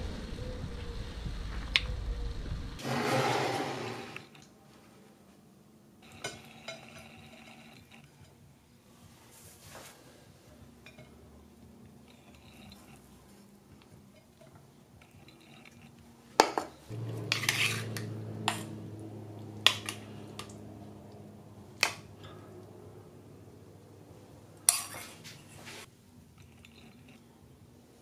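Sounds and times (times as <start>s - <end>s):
low background rumble: 0.0s - 2.8s, 16.9s - 24.7s
spoon scraping ceramic plate: 17.0s - 18.8s.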